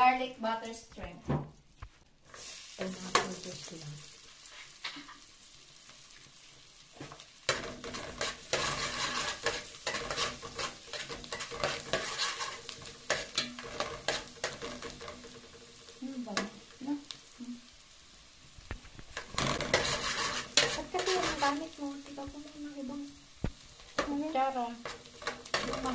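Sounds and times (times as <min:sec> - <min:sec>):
garlic sizzling in butter: 0:01.8 - 0:25.9
metal spoon scraping a pot: 0:07.5 - 0:16.6, 0:19.1 - 0:21.7, 0:24.8 - 0:25.9.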